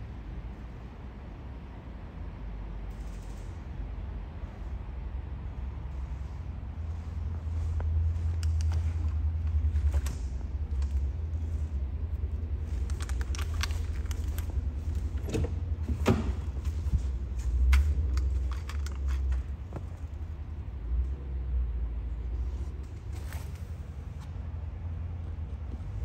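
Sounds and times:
steady low rumble: 0.0 - 26.0
light clicks and handling noises: 5.8 - 21.4.

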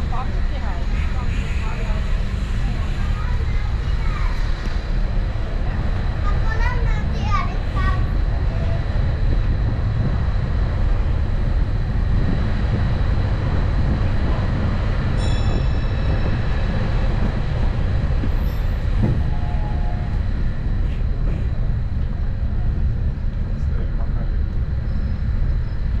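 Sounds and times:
road train rumbling: 0.0 - 26.0
high metallic ring: 15.2 - 17.2.

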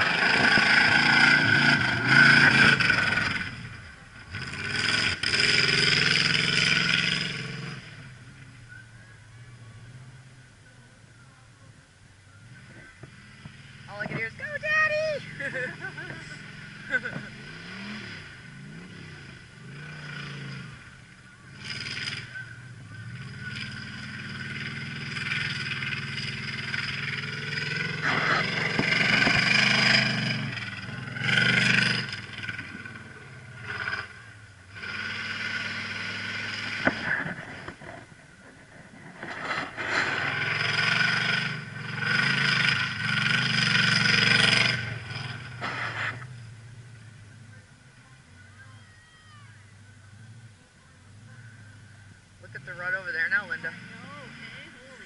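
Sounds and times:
race vehicle engine revving: 0.0 - 10.4, 12.3 - 55.0.

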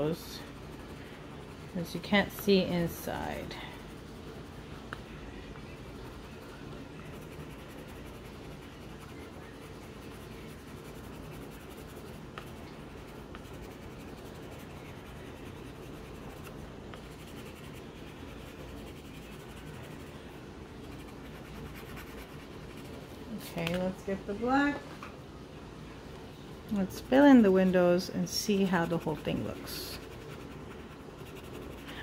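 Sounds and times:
pencil scratching on paper: 5.8 - 20.1, 20.8 - 23.0, 28.4 - 32.0.

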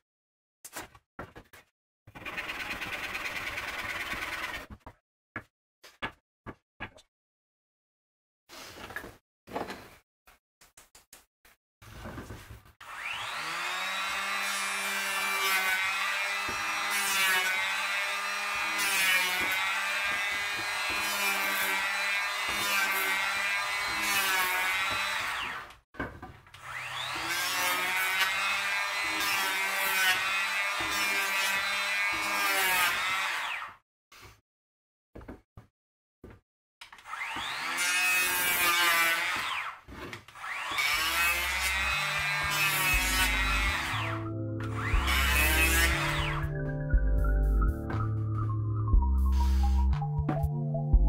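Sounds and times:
electric planer whining: 12.8 - 25.7, 26.6 - 33.6, 37.0 - 39.7, 40.4 - 46.5.

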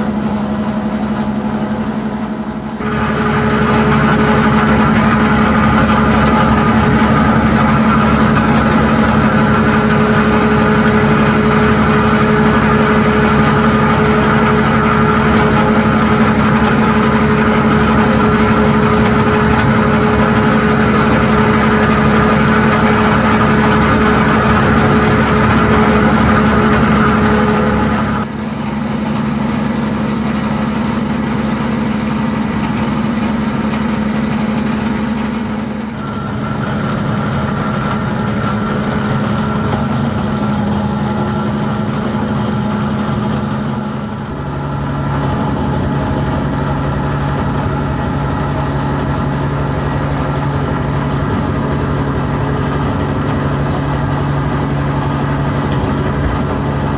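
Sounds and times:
plastic crusher machine humming: 0.0 - 56.9.

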